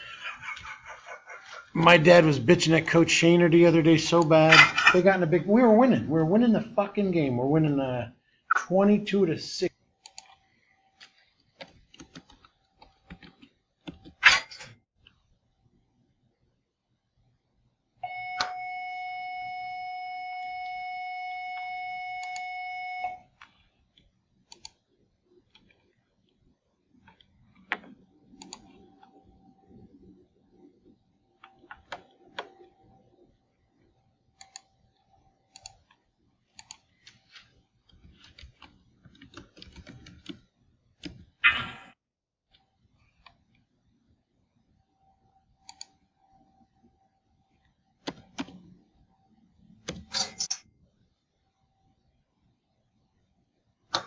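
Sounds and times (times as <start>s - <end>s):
computer keyboard typing: 11.0s - 14.2s, 35.5s - 37.2s, 37.9s - 41.3s.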